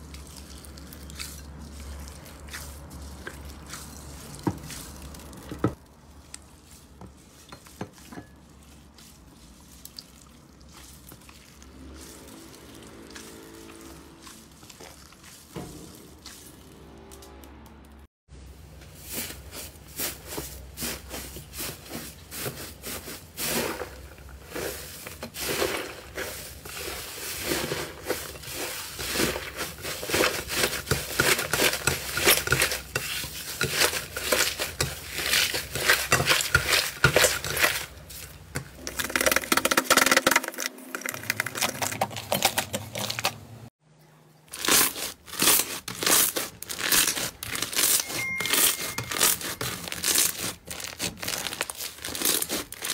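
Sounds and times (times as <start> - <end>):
hands squishing slime: 49.2 - 52.9.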